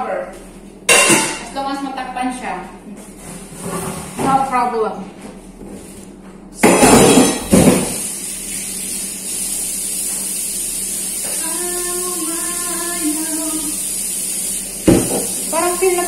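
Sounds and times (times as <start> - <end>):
kitchenware clattering: 0.9 - 1.5, 6.6 - 8.0, 14.8 - 15.4
woman singing a drawn-out note: 11.4 - 13.8.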